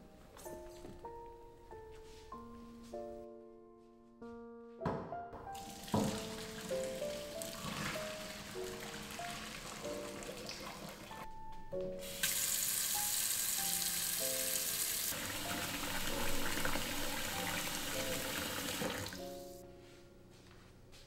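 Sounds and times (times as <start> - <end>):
tap water filling pot: 5.6 - 11.2, 15.1 - 19.2.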